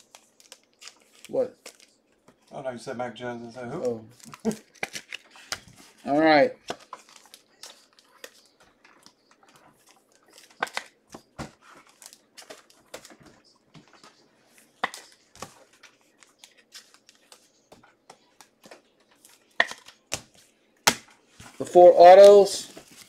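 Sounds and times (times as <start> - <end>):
plastic packaging crinkling: 0.0 - 2.2, 3.7 - 6.0, 6.7 - 14.1.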